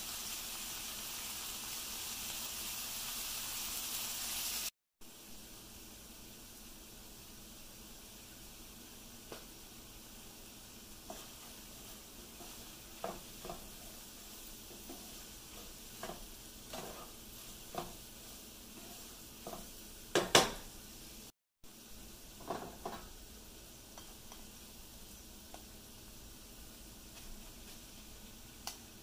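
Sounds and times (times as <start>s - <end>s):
faint sizzle: 0.0s - 29.0s
wooden spatula scraping a pan: 10.9s - 20.7s, 22.3s - 23.2s.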